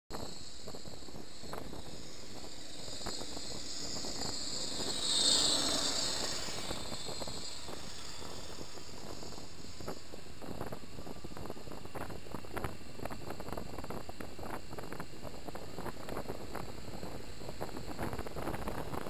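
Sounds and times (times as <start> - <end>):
wind rushing over microphone: 0.1 - 19.0
motorcycle engine: 0.2 - 11.0.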